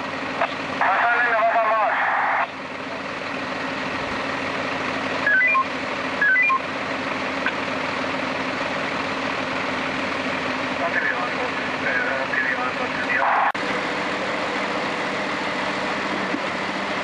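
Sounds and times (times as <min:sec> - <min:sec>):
fire engine idling: 0:00.0 - 0:17.0
electronic beeping jingles: 0:05.3 - 0:06.6.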